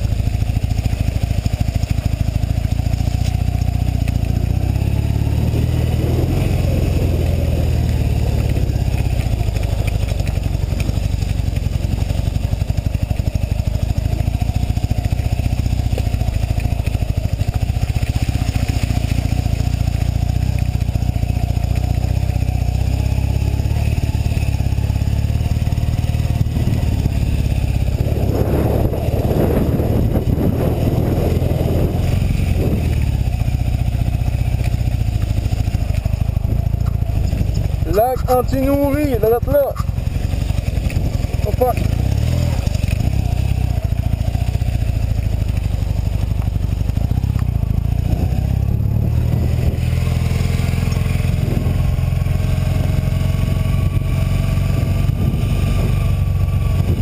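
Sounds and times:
motorcycle engine running: 0:00.0 - 0:57.0
clatter: 0:08.2 - 0:22.8, 0:32.3 - 0:38.8, 0:39.8 - 0:53.1.

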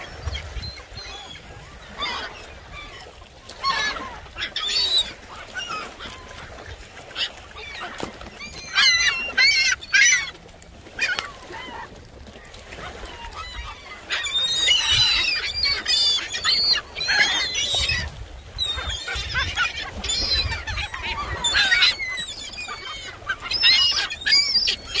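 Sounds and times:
gulls calling: 0:00.0 - 0:25.0.

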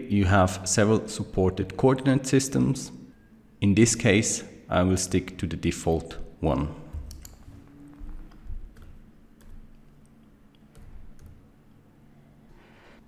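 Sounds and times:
low steady hum: 0:00.0 - 0:13.0
keyboard keystrokes and clicks: 0:06.9 - 0:11.5.

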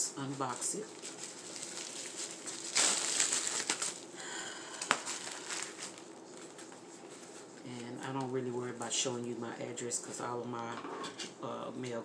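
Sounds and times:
plastic mailer crinkling: 0:00.2 - 0:07.3.

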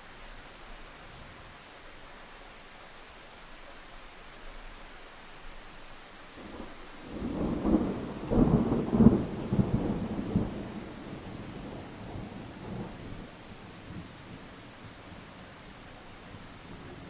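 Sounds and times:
steady hiss: 0:00.0 - 0:17.0
thunder rumbling and cracking: 0:06.4 - 0:14.4.

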